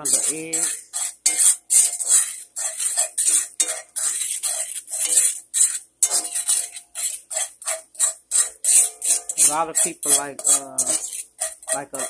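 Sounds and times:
utensil scraping in a skillet: 0.0s - 12.0s.

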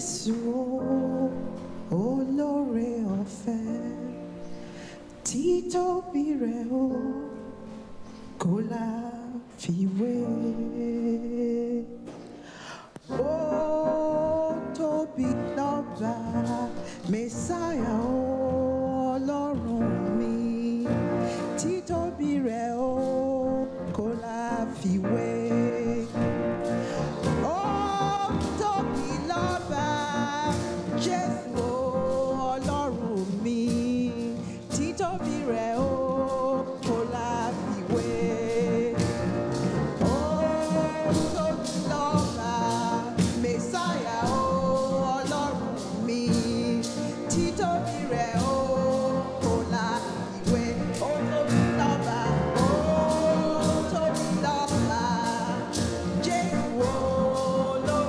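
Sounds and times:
woman singing into a microphone: 0.0s - 58.0s
steady beat: 26.1s - 58.0s.

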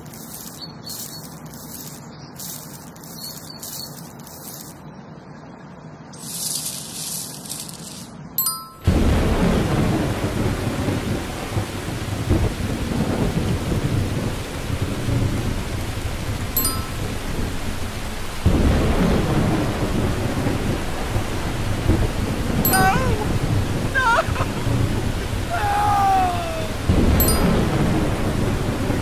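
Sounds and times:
heavy rain: 0.0s - 5.1s, 6.1s - 29.0s
thunder rumbling: 8.9s - 29.0s
short bright ding: 27.2s - 27.6s.

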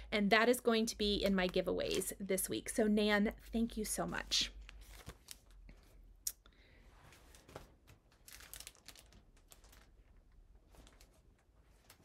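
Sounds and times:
paper rustling: 4.0s - 5.9s, 7.0s - 12.0s.

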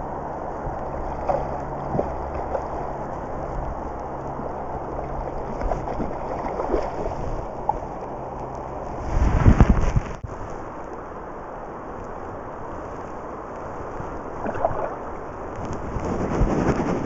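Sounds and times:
river running: 0.0s - 15.7s
fish splashing in water: 1.0s - 3.1s, 4.4s - 8.0s, 14.3s - 15.3s.

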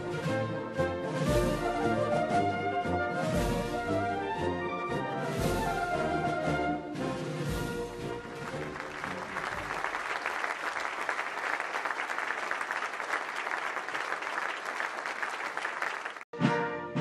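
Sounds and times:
brass band marching music: 0.0s - 10.2s
crowd applauding: 8.2s - 16.3s.

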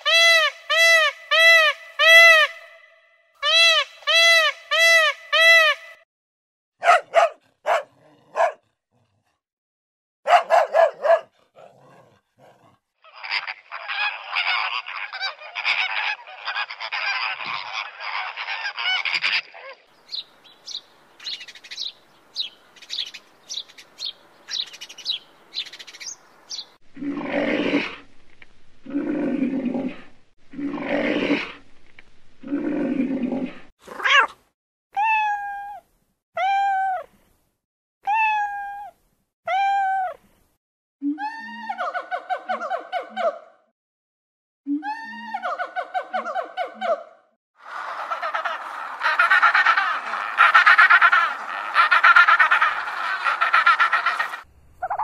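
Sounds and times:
long low animal calls: 13.0s - 19.8s, 47.6s - 55.0s
overlapping animal calls: 13.0s - 26.6s, 47.6s - 55.0s
chaffinch chirps: 20.0s - 26.8s, 54.0s - 55.0s
cat meowing: 33.9s - 34.4s.

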